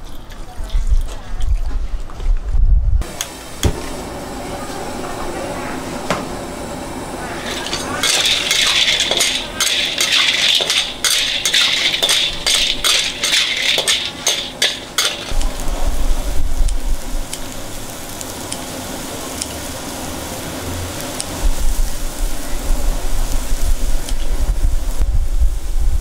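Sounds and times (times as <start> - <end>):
snails sizzling in a wok: 7.2 - 26.0
metal ladle clinking against wok: 7.4 - 15.4.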